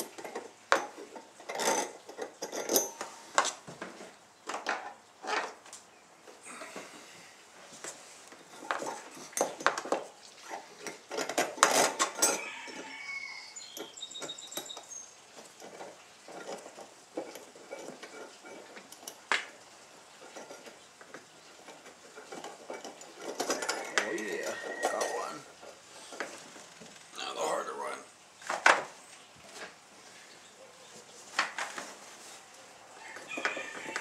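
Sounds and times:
small metal hardware clinking: 0:00.0 - 0:03.5, 0:08.5 - 0:13.0, 0:13.6 - 0:26.3.

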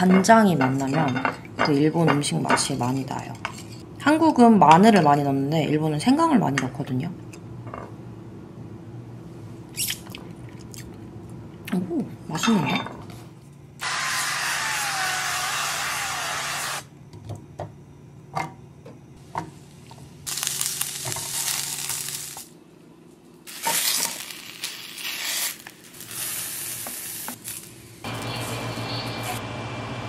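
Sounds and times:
vegetables sizzling in a pan: 0:13.8 - 0:16.8, 0:19.6 - 0:22.5, 0:23.5 - 0:29.4.

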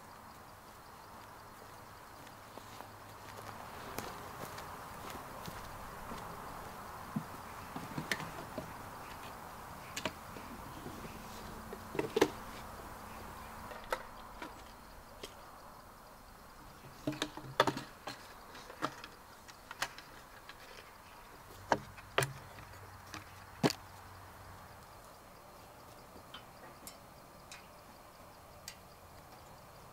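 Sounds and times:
faint steady hiss: 0:00.0 - 0:29.9.

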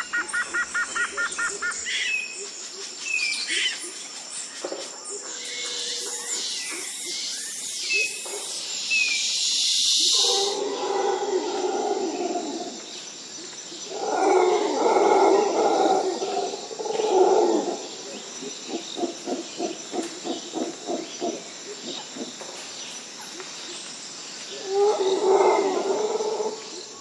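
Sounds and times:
steady high hiss: 0:06.4 - 0:11.2
animal roaring: 0:10.2 - 0:12.8, 0:13.9 - 0:17.9, 0:24.6 - 0:26.6.

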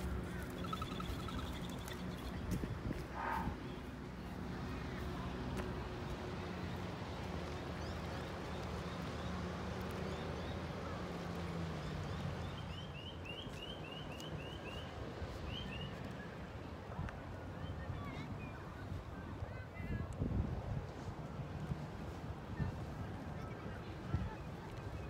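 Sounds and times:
steady low rumble: 0:00.0 - 0:08.5
small birds chirping: 0:00.3 - 0:02.6.

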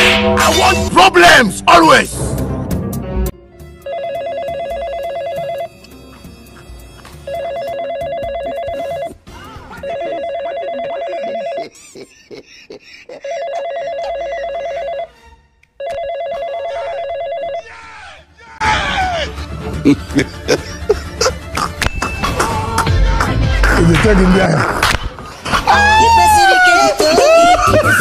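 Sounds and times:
mobile phone ringing: 0:03.8 - 0:05.8, 0:07.2 - 0:09.2, 0:09.8 - 0:11.7, 0:13.2 - 0:15.2, 0:15.8 - 0:17.7.

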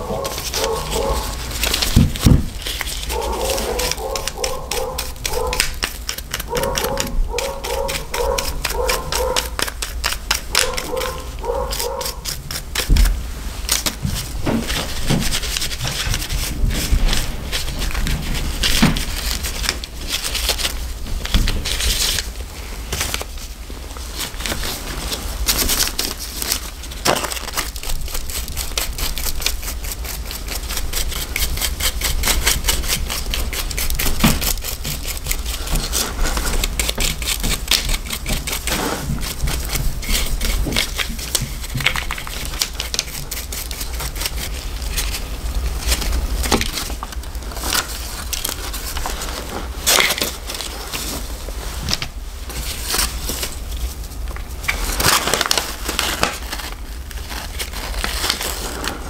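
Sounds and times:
brush scrubbing: 0:00.0 - 0:21.0, 0:27.5 - 0:51.9.

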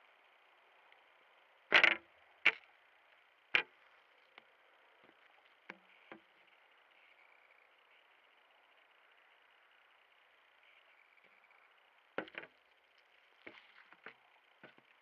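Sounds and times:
faint crackles and scuffs: 0:12.2 - 0:15.0
boots crunching bread: 0:13.4 - 0:14.8.

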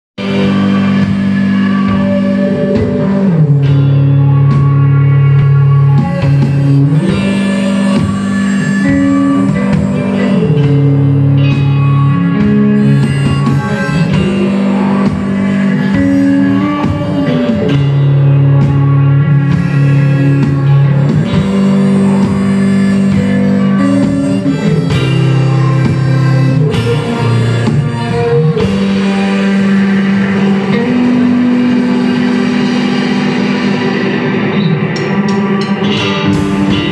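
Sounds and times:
held low notes: 0:00.2 - 0:36.9
live rock band: 0:00.2 - 0:36.9
steady drumming: 0:00.2 - 0:36.9.

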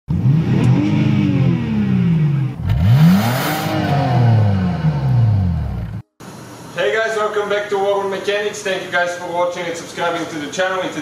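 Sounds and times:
car engine revving: 0:00.1 - 0:06.1.

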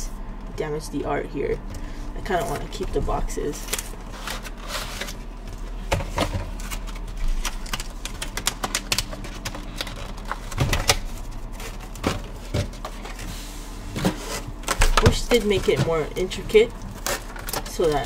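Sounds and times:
plastic blister tray crinkling: 0:02.3 - 0:13.3, 0:14.0 - 0:18.0
cardboard packaging peeled open: 0:03.5 - 0:05.3.

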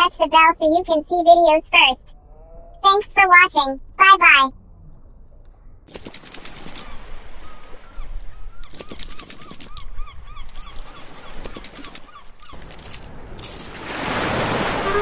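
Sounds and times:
splashing water rush: 0:12.7 - 0:15.0
squeaky cartoon honks: 0:14.5 - 0:15.0.

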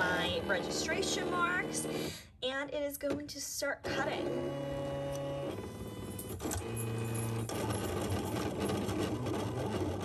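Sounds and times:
cutting machine motors whirring: 0:00.0 - 0:02.0, 0:04.1 - 0:10.0.

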